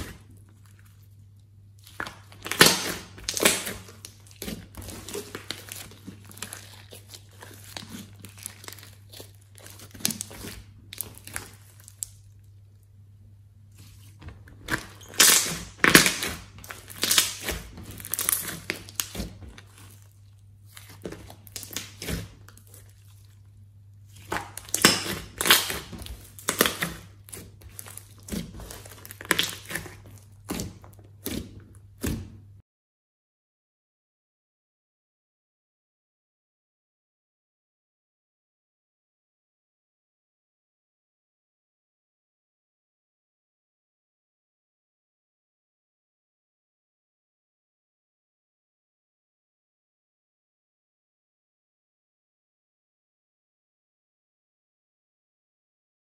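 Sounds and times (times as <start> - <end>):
slime squeezed by hand crackling: 1.8 - 12.3, 14.7 - 20.1, 24.1 - 31.4.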